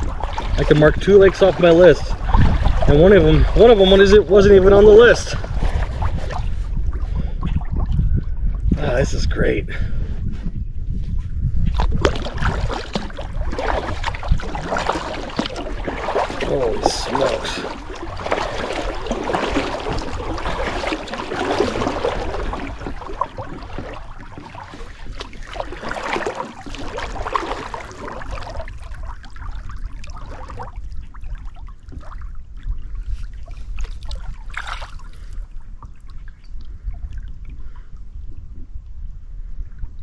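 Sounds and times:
paddle splashing in water: 0.0s - 7.9s, 11.7s - 37.8s
low steady rumble: 0.0s - 26.2s
water dripping off paddle: 12.0s - 30.6s.

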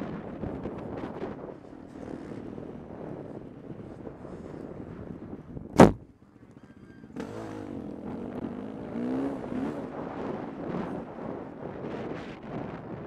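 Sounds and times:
wind on microphone: 2.3s - 6.1s
dirt bike engine revving: 7.1s - 10.8s.

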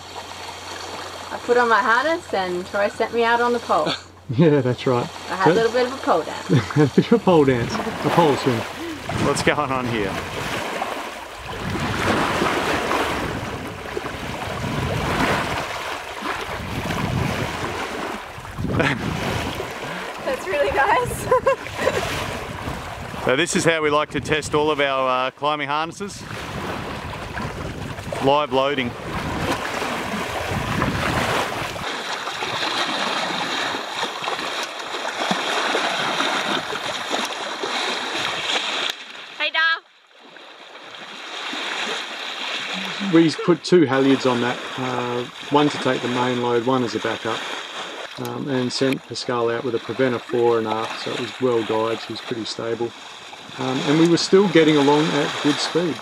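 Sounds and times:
sea water rushing and splashing: 0.0s - 56.0s
wind on microphone: 7.5s - 24.8s, 26.0s - 33.5s.

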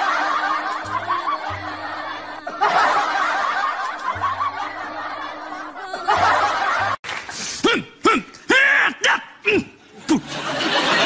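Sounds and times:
laughter: 0.0s - 1.6s, 2.5s - 7.0s, 9.8s - 11.0s
background music: 0.0s - 11.0s.

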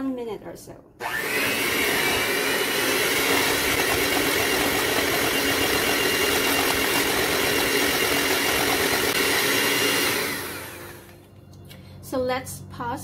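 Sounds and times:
electric mixer whirring: 1.0s - 11.2s.

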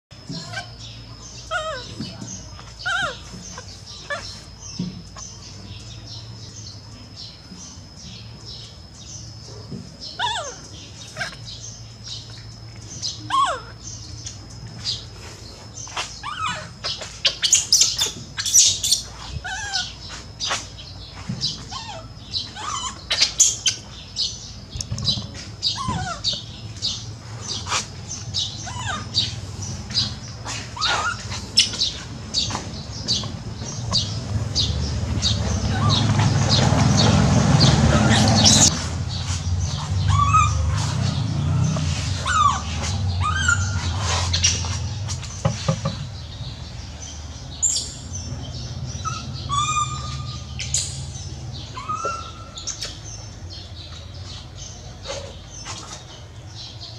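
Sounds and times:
squeaky rising calls: 1.4s - 5.4s, 10.1s - 11.5s, 13.1s - 14.1s, 15.9s - 20.7s, 21.4s - 23.9s, 25.2s - 45.2s, 47.6s - 53.6s
motorbike engine: 25.0s - 47.6s.

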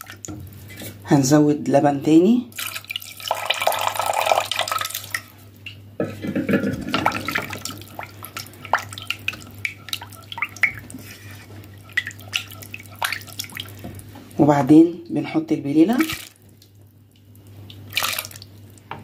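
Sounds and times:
milk pouring into pot: 2.6s - 5.3s
spatula stirring in pot: 6.1s - 14.4s.

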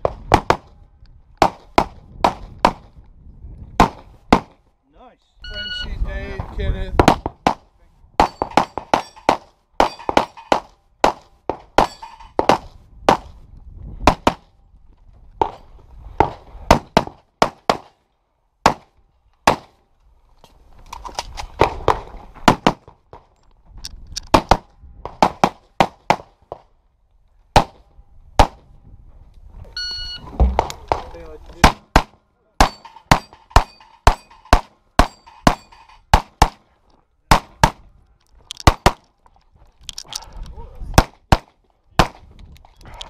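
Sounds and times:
metallic ring of steel targets: 8.2s - 10.6s, 11.8s - 12.4s, 32.6s - 36.1s.

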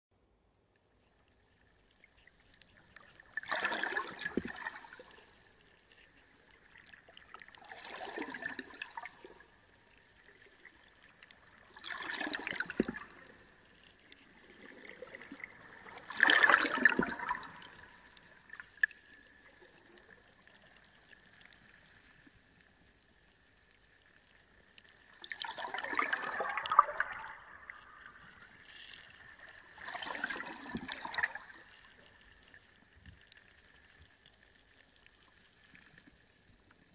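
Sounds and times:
aquarium water gurgling and splashing: 2.1s - 5.7s, 6.4s - 21.8s, 24.8s - 32.6s.

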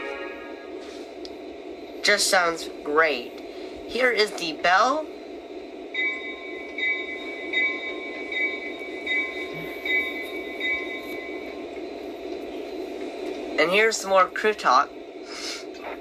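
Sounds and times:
locomotive bell ringing: 6.0s - 11.7s.

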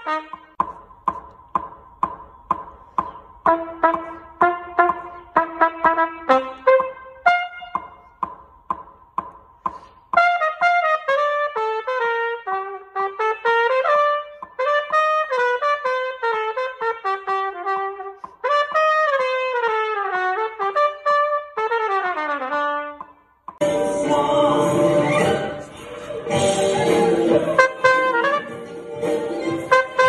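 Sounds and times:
solo trumpet playing: 0.0s - 0.6s, 3.4s - 8.2s, 10.2s - 23.3s, 27.3s - 28.8s, 29.4s - 30.0s.

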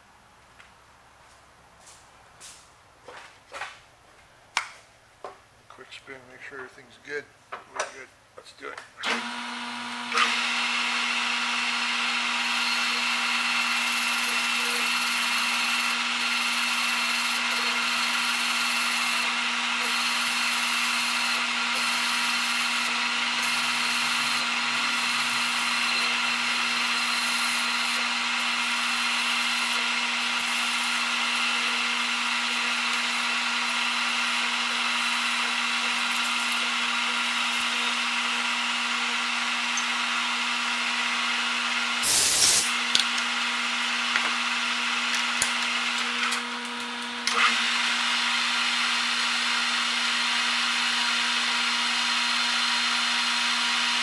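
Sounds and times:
metal lathe whining: 9.0s - 54.0s
parting tool cutting metal: 11.5s - 40.1s, 42.0s - 43.3s.

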